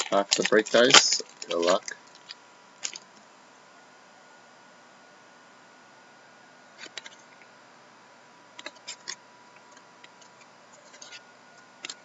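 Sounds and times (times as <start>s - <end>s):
faint hiss and high hum: 0.0s - 12.0s
trading cards clicking: 8.6s - 11.2s.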